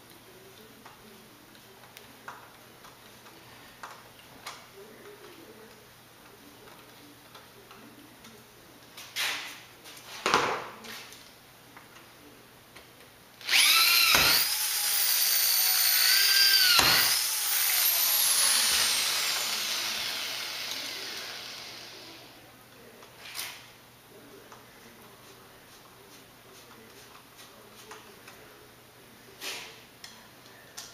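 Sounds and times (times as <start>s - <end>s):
power drill boring through metal: 13.4s - 22.1s.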